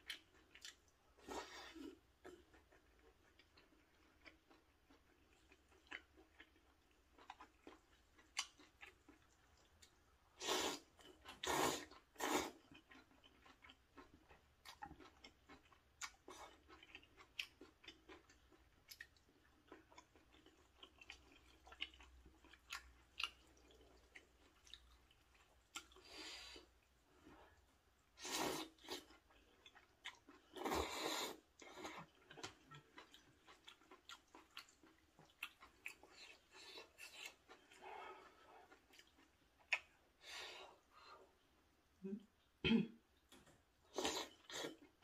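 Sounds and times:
person chewing: 0.0 - 41.5, 43.4 - 45.0
person slurping noodles: 10.4 - 12.6.

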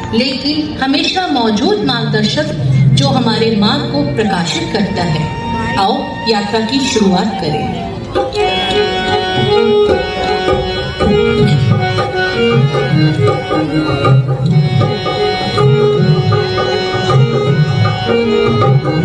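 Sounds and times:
held melody line: 2.8 - 19.0
hand drum rhythm: 8.1 - 19.0.

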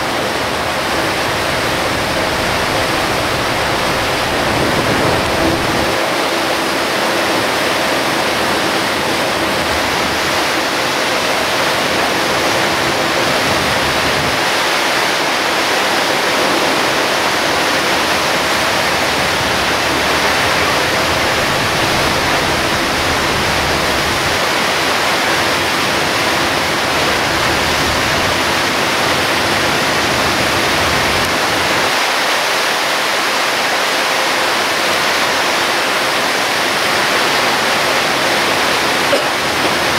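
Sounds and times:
heavy rain and road spray: 0.0 - 39.9
low rumble: 1.4 - 6.0.

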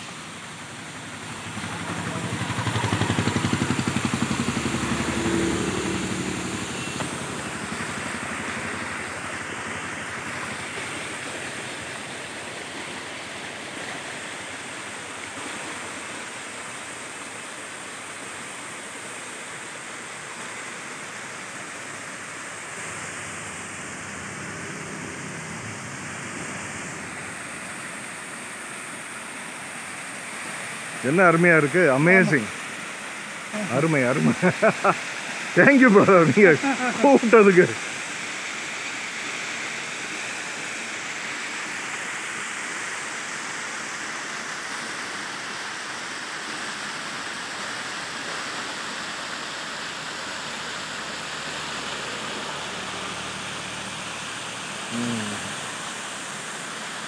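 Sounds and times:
waterfall rushing: 0.0 - 57.0
vehicle passing: 1.3 - 11.2, 22.8 - 27.8, 51.4 - 54.3.

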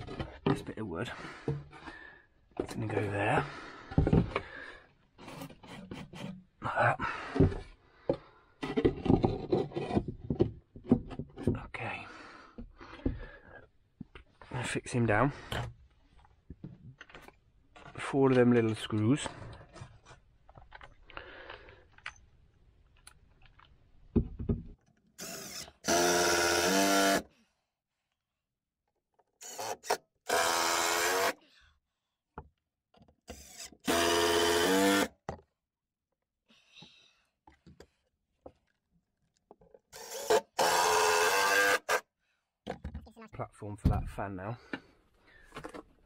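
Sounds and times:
cordless drill driving screws: 25.2 - 27.2, 29.4 - 31.4, 33.3 - 35.1, 39.9 - 42.0.

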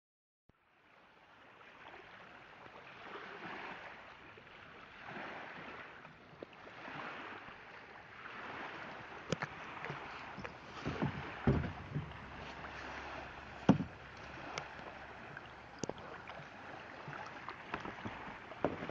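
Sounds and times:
water washing and splashing: 4.9 - 18.9.

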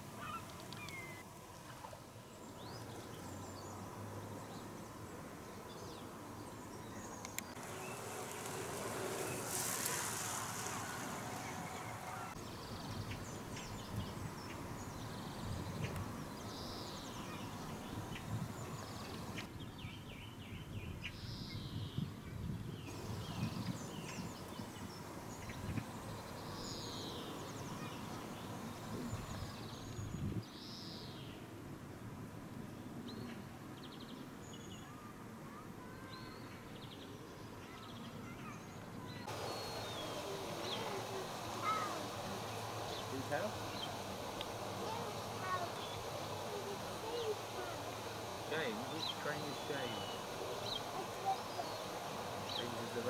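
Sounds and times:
wild birds calling: 0.0 - 4.8, 5.5 - 19.5, 22.9 - 31.3, 38.2 - 53.0
outdoor background noise: 0.0 - 53.0.

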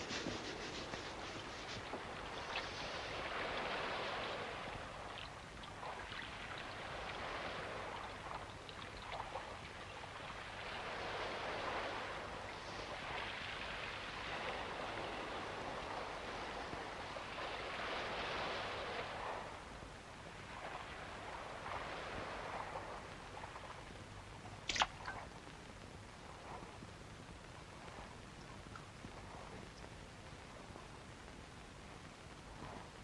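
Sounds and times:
sea waves washing: 0.0 - 25.5.

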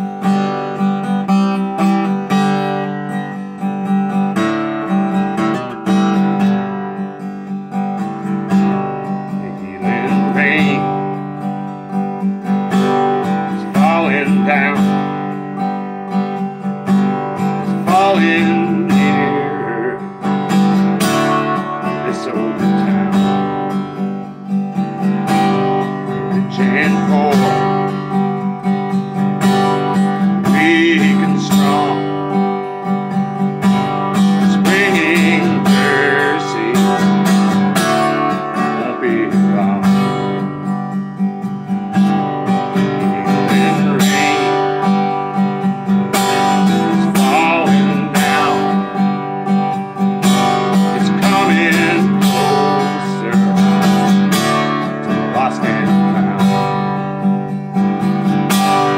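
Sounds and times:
acoustic guitar strumming: 0.0 - 58.9
man singing: 9.2 - 11.6, 13.2 - 15.6, 17.4 - 23.8, 25.3 - 28.3, 29.9 - 32.5, 33.6 - 40.8, 42.5 - 57.0, 58.6 - 58.9.

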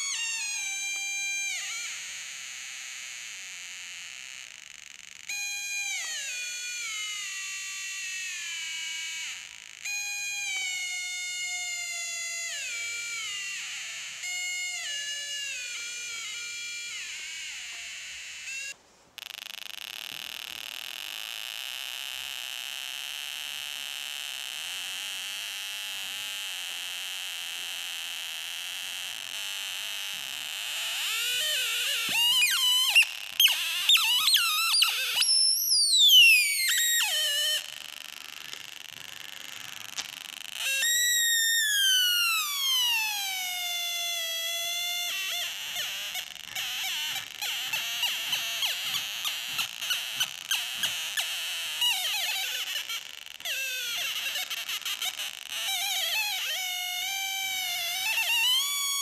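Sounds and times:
electronic buzzing tone: 28.9 - 51.2.

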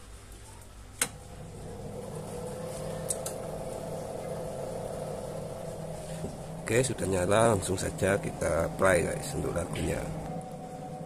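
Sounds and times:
amplifier hum and whir: 0.0 - 11.0.

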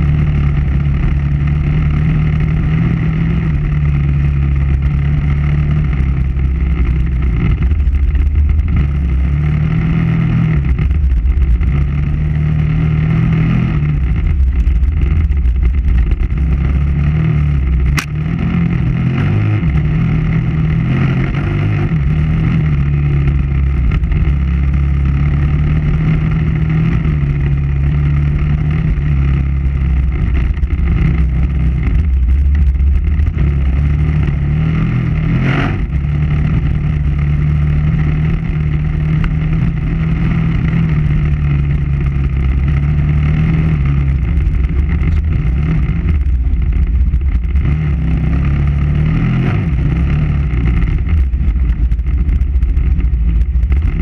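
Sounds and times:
motorcycle engine revving: 0.0 - 54.0
sharp click: 17.9 - 18.2.

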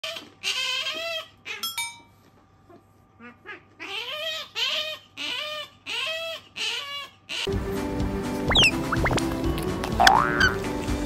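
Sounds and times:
otter squeaky calls: 8.5 - 9.3.

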